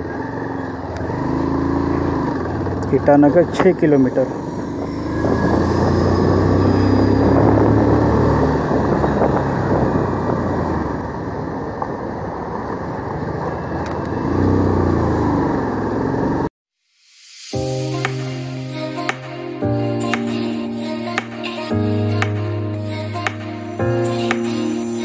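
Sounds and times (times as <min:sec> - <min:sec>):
motorcycle engine running: 0:00.0 - 0:16.5
wind and road noise: 0:00.0 - 0:16.5
background music: 0:17.0 - 0:25.0.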